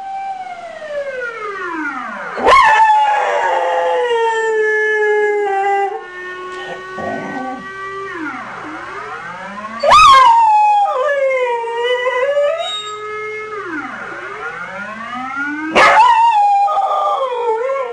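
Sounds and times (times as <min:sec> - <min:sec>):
siren wailing: 0:00.0 - 0:17.9
dog howling: 0:05.2 - 0:07.6, 0:15.8 - 0:17.9.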